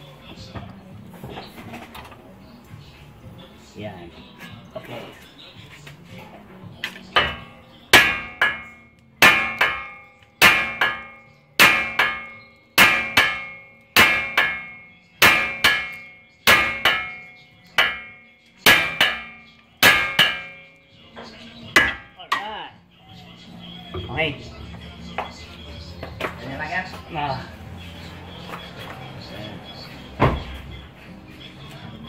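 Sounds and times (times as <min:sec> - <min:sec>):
hammer hitting metal: 0:07.2 - 0:20.7, 0:21.8 - 0:22.5.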